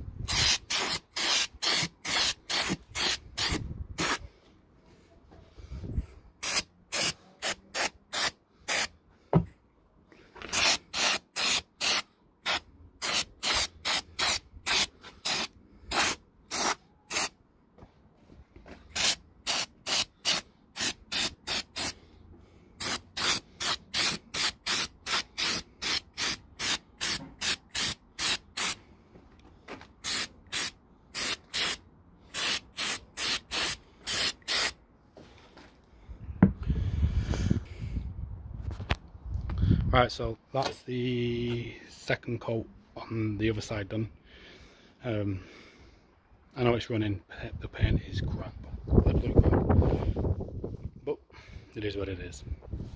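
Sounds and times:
spray can hissing bursts: 0.3 - 4.2, 6.4 - 8.9, 10.5 - 17.3, 19.0 - 22.0, 22.8 - 28.8, 30.0 - 34.8.

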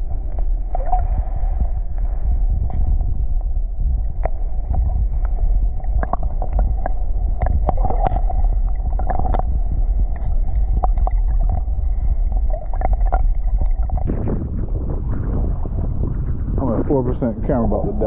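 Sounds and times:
underwater clicks and ticks: 0.0 - 14.2
underwater rumble of moving water: 0.0 - 18.0.

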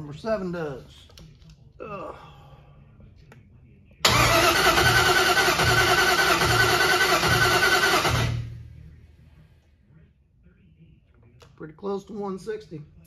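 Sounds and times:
starter cranking engine: 4.1 - 8.4.

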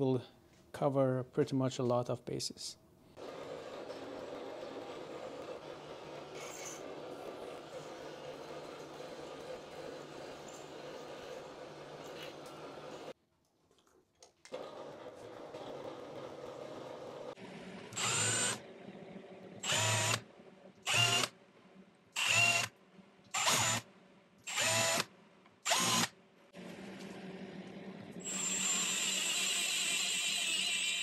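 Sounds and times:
steady machining sound: 18.0 - 18.6, 19.6 - 20.2, 25.7 - 26.1, 28.2 - 31.0
milling machine cutting metal: 28.2 - 31.0.

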